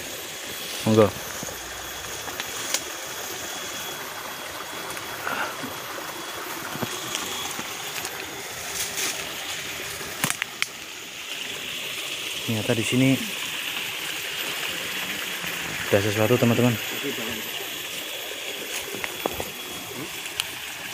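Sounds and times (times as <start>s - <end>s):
stream flowing: 0.0s - 20.9s
branches snapping and rustling: 1.3s - 3.0s, 6.8s - 10.8s.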